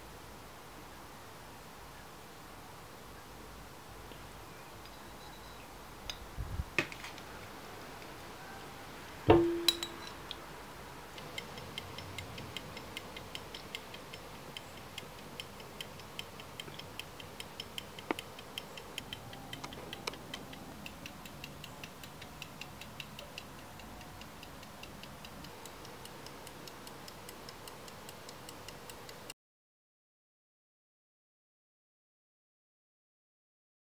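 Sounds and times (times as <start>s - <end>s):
sharp metallic clink: 9.3s - 10.4s
pocket watch ticking: 11.1s - 29.3s.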